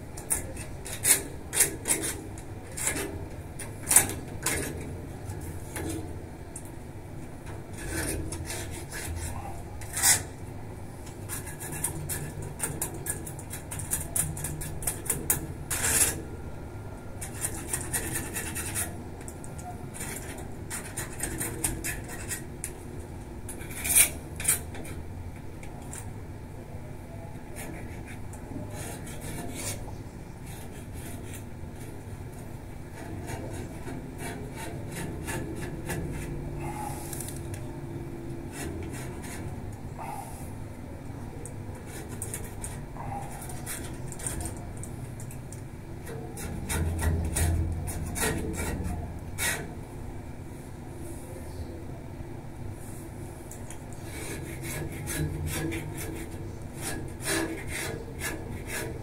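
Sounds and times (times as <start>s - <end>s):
tool scraping iron railing: 0.2s - 6.2s, 7.4s - 10.4s, 11.0s - 16.3s, 17.2s - 22.8s, 23.4s - 26.1s, 27.4s - 32.0s, 32.9s - 37.4s, 38.4s - 40.3s, 41.7s - 45.3s, 46.0s - 49.9s, 54.0s - 59.0s.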